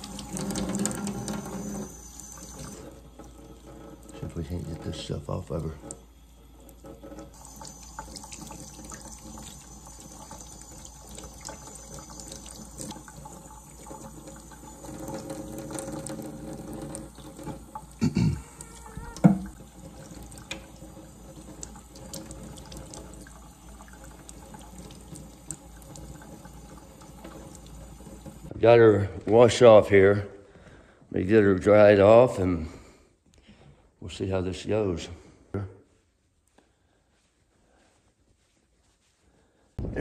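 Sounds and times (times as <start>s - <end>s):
faucet running into metal sink: 0.0s - 28.5s.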